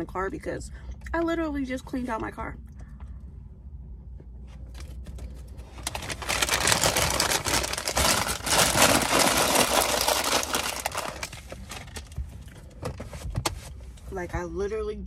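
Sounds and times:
paper bag crinkling: 5.6 - 12.1.

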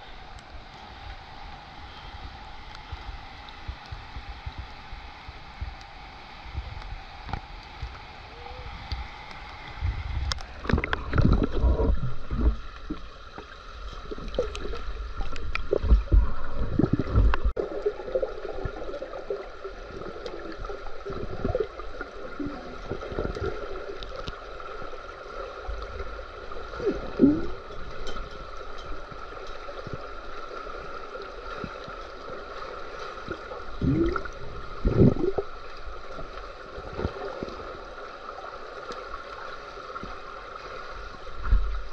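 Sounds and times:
water gurgling with bubbles underwater: 8.9 - 41.9.

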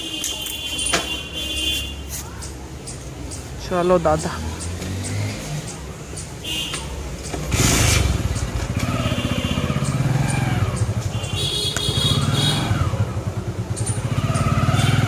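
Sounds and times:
motorcycle engine revving: 4.2 - 6.0, 6.7 - 15.0.

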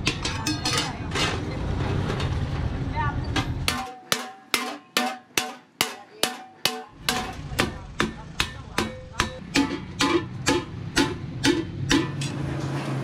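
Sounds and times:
hammer striking sheet metal: 3.6 - 12.4.

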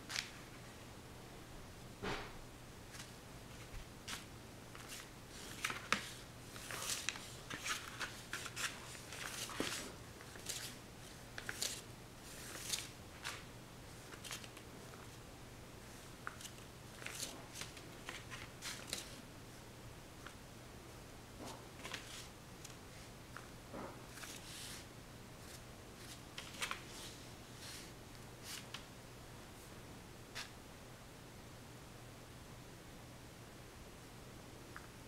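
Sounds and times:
faint electrical hum: 0.0 - 35.0
paintbrush swishing on paper: 24.1 - 26.2.

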